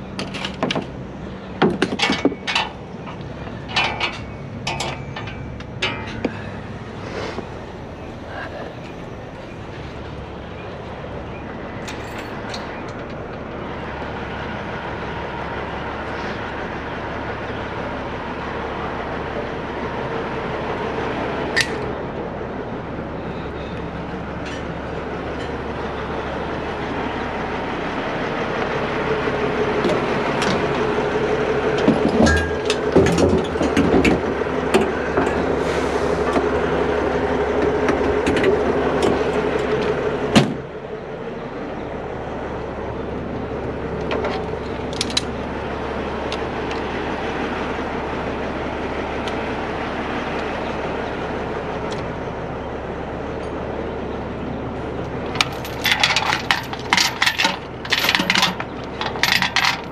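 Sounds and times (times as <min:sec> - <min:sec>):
diesel engine idling: 0:00.0 - 0:59.9
metal clanks of gear: 0:01.6 - 0:06.5, 0:11.8 - 0:13.2, 0:31.8 - 0:34.2, 0:55.3 - 0:59.9.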